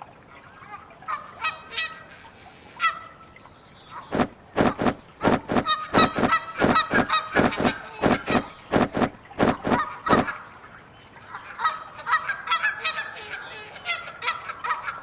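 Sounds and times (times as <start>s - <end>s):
geese honking: 3.9s - 10.5s.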